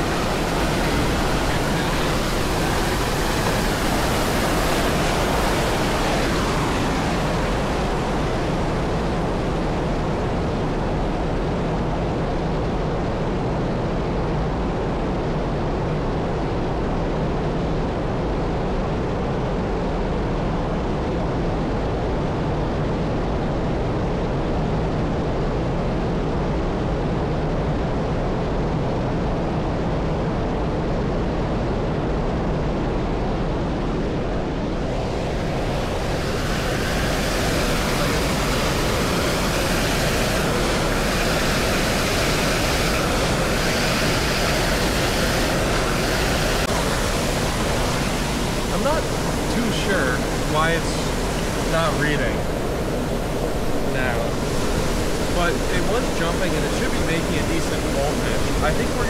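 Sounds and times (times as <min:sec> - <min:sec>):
waterfall rushing: 0:34.9 - 0:59.0.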